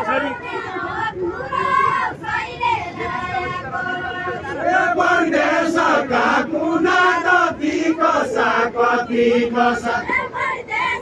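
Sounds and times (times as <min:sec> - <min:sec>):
group of men chanting: 0:04.5 - 0:10.1.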